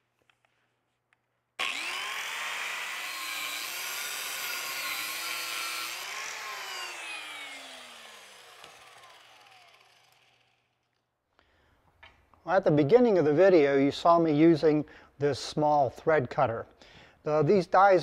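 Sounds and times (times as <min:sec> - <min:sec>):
angle grinder cutting metal rod: 0:01.6 - 0:10.6.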